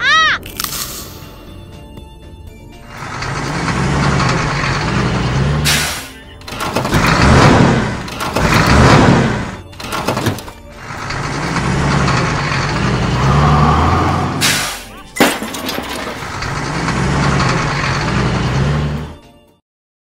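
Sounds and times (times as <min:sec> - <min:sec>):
cartoon truck engine revving: 0:02.8 - 0:19.2
air brake hiss: 0:05.7 - 0:06.2, 0:14.4 - 0:14.9.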